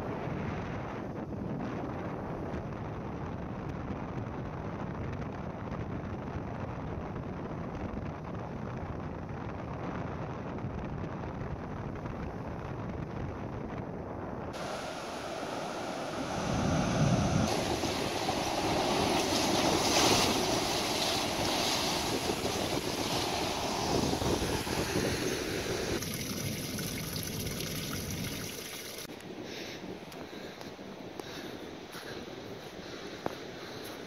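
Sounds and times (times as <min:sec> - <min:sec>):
wind buffeting microphone: 0:00.0 - 0:34.0
ocean surf against rocks: 0:14.6 - 0:26.0
water trickling down sand: 0:17.4 - 0:29.1.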